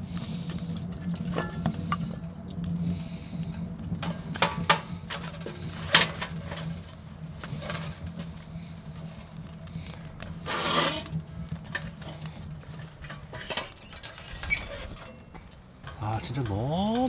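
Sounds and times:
steady low hum: 0.0 - 17.0
firewood knocking against metal stove: 1.0 - 2.2, 3.9 - 6.6.

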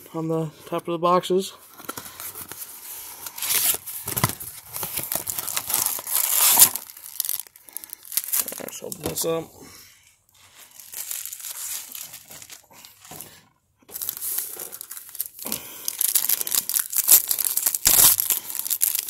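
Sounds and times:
foil wrappers rustling: 1.8 - 9.4, 10.4 - 19.0
foil wrapper tearing: 4.7 - 9.0, 10.7 - 12.9, 13.9 - 19.0.

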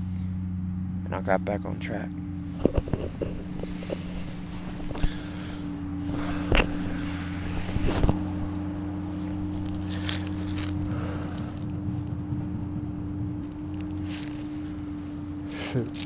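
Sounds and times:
low mechanical hum: 0.0 - 16.0
footsteps in grass: 2.4 - 12.2, 13.4 - 16.0.

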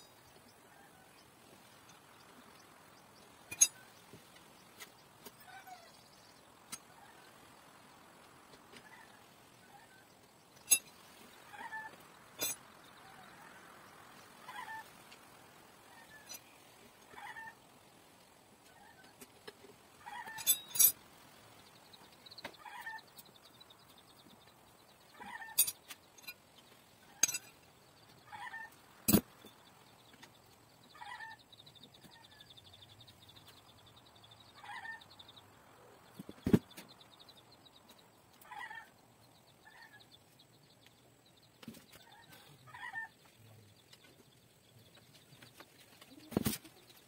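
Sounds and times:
metal tool clicks and clinks: 20.3 - 21.0, 27.2 - 27.6.

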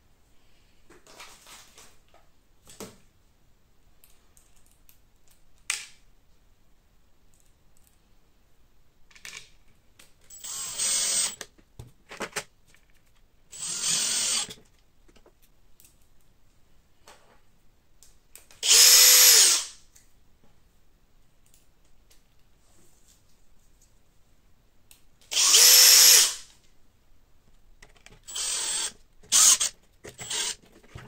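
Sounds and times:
cordless driver running: 25.3 - 26.4, 28.3 - 30.6.

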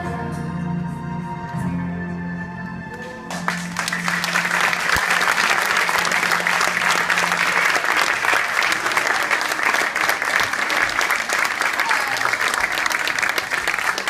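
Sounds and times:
audience applauding: 2.9 - 14.0.

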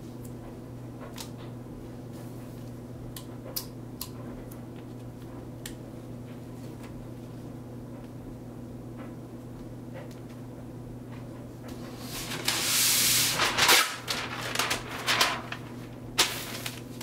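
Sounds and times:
steady low hum: 0.0 - 17.0
paper rustling: 11.7 - 17.0.

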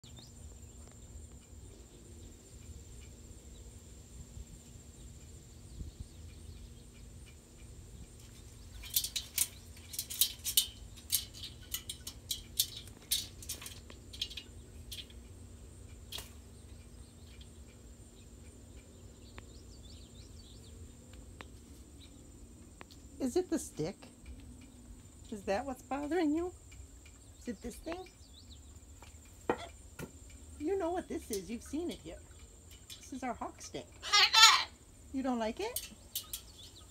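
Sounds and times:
bird feathers rustling: 8.2 - 15.4.

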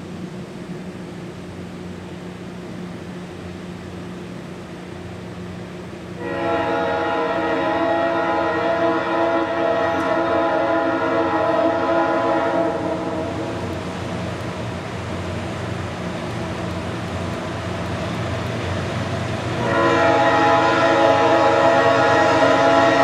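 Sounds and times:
train noise: 0.0 - 23.0
locomotive air horn chord: 6.2 - 13.6, 19.6 - 23.0.

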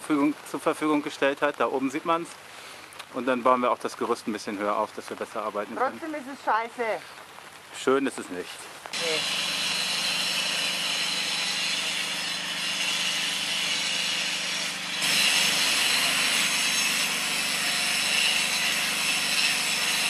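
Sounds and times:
power tool grinding stone: 9.0 - 20.0.

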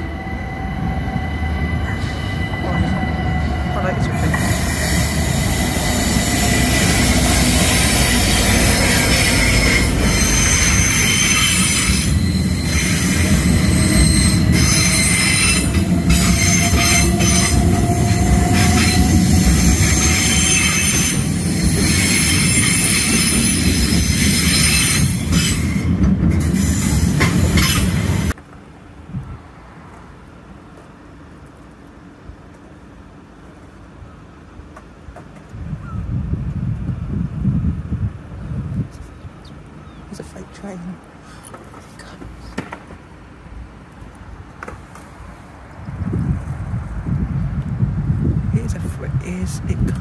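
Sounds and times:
high-pitched wheel squeal: 0.0 - 25.7
freight train rolling rumble: 0.0 - 39.4, 41.0 - 50.0.

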